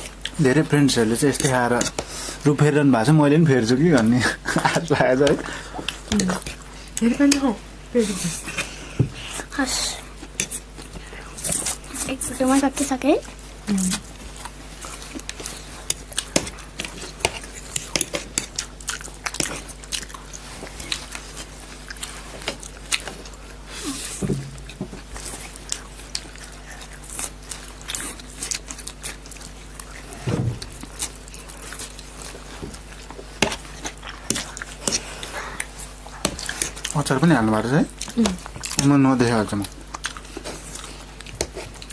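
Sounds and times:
people chewing and slurping: 0:00.0 - 0:41.9.

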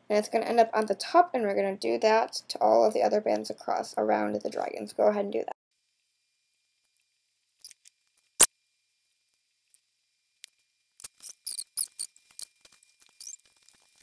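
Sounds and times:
high squeaky ticks: 0:11.0 - 0:13.5.

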